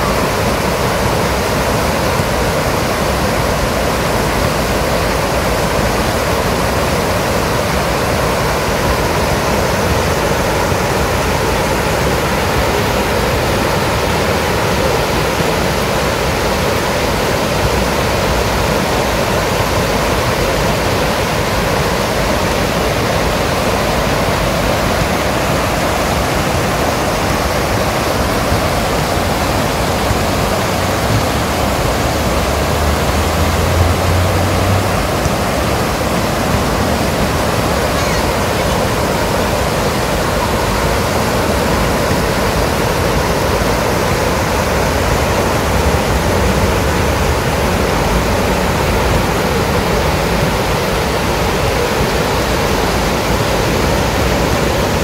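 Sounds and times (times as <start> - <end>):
water rushing over rapids: 0.0 - 55.0.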